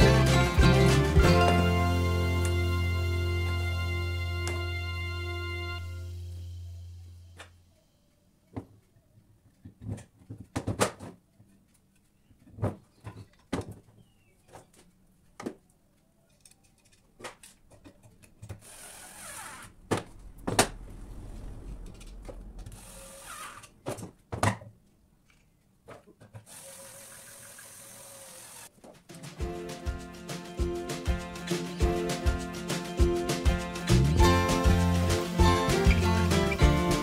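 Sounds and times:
wooden legs knocking together: 0:09.6 - 0:11.3, 0:12.4 - 0:14.8.

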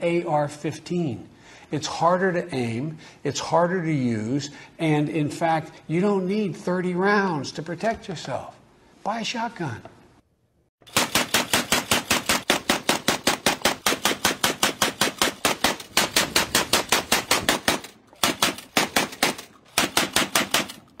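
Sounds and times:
automatic shotgun fire: 0:10.8 - 0:20.9.

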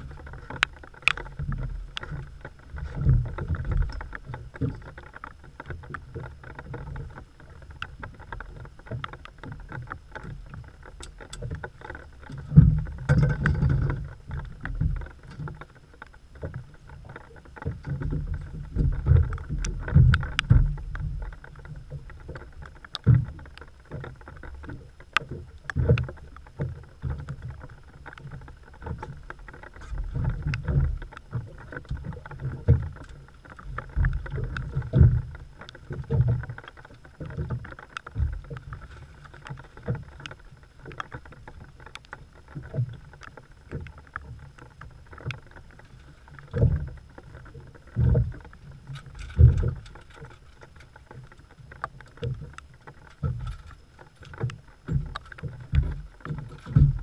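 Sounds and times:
water slapping boat hull: 0:00.0 - 0:57.0
low thumps and knocks: 0:54.5 - 0:57.0.

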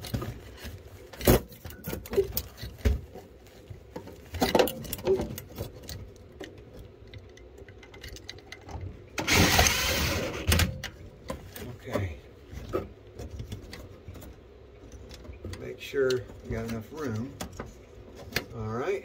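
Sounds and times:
power driver running: 0:09.2 - 0:10.8.

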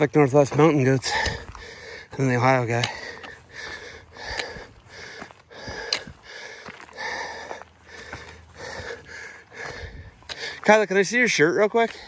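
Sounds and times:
footsteps on dirt trail: 0:00.0 - 0:12.0
person breathing hard: 0:01.0 - 0:10.7.

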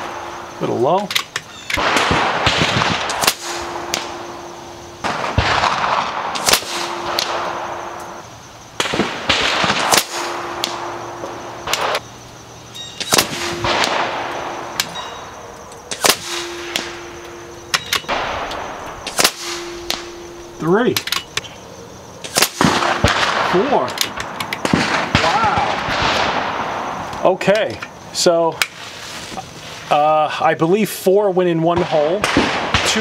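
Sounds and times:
air rifle shots: 0:01.0 - 0:12.0, 0:13.0 - 0:21.4, 0:22.2 - 0:26.9, 0:31.7 - 0:33.0.

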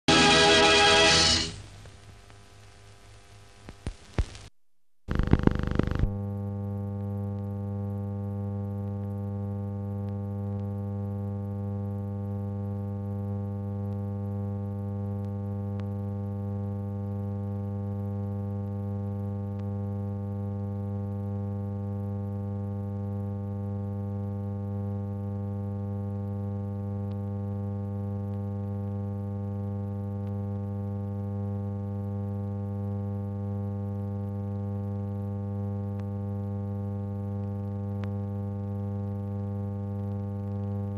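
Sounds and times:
steady electrical hum: 0:00.1 - 0:04.5.

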